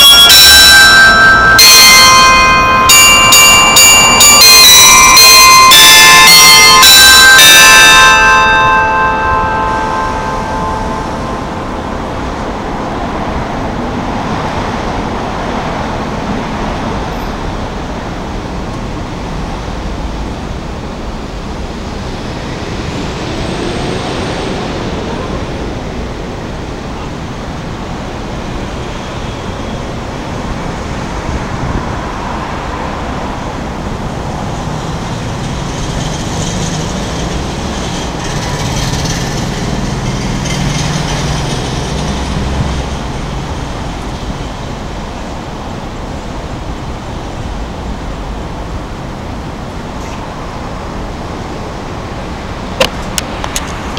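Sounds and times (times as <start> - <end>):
high whistle: 0.0 - 11.4
city traffic noise: 0.0 - 53.9
heavy vehicle rumble: 0.0 - 53.9.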